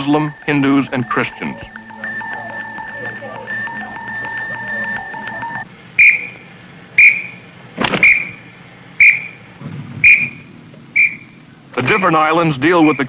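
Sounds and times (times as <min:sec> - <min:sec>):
short whistle blasts: 0:07.0 - 0:07.4, 0:08.0 - 0:08.4, 0:09.0 - 0:09.4, 0:10.0 - 0:10.4, 0:11.0 - 0:11.3.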